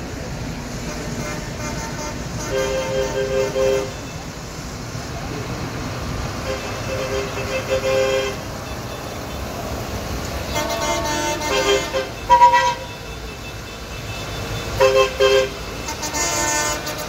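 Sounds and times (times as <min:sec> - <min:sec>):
diesel engines rumbling: 0:00.0 - 0:17.0
tractor horns tooting: 0:00.8 - 0:04.3, 0:06.4 - 0:09.7, 0:10.3 - 0:17.0.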